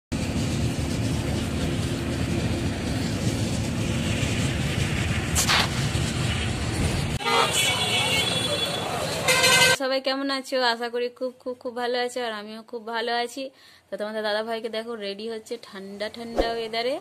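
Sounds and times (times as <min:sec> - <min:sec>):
bus rumbling: 0:00.1 - 0:09.8.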